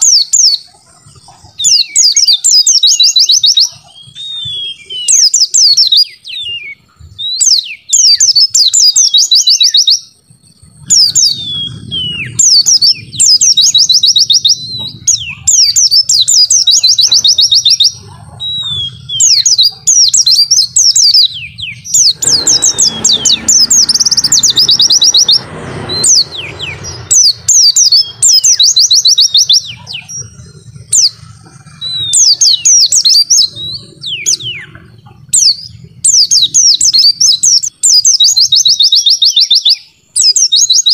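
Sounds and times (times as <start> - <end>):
bird trilled chattering: 0.0 - 40.9
rushing noise: 19.0 - 32.3.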